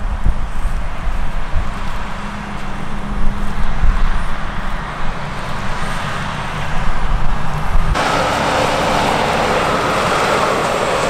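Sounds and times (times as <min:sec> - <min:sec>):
combine harvester engine rumble: 0:00.4 - 0:11.0
combine harvesting hiss: 0:08.0 - 0:11.0.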